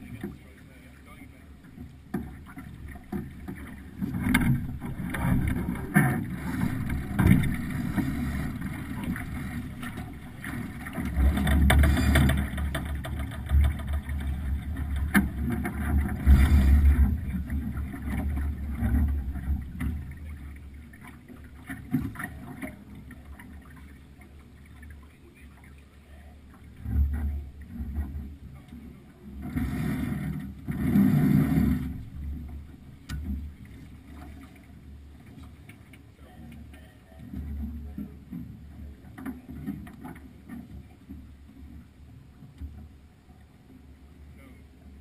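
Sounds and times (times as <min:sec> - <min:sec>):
water washing along hull: 0:00.0 - 0:45.0
wind rumbling on microphone: 0:02.4 - 0:20.8.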